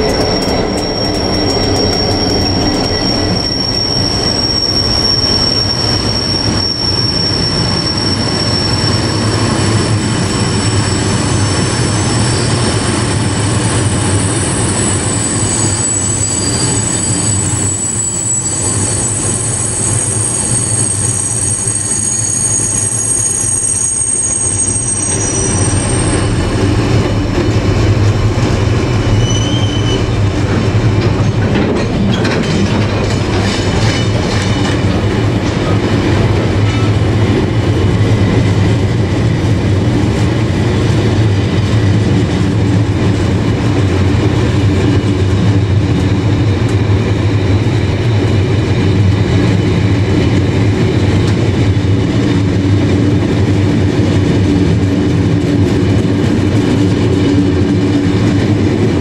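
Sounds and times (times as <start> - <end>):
high wheel squeal: 0.0 - 27.3, 28.9 - 30.4
freight train wheels rumbling: 0.0 - 59.0.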